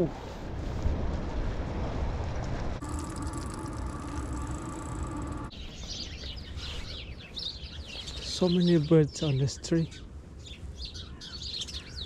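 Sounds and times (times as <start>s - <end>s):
wind: 0.0s - 12.0s
bicycle rolling rumble: 0.7s - 6.5s
mechanical hum with fast ticking: 2.8s - 5.6s
small birds chirping: 2.8s - 12.0s.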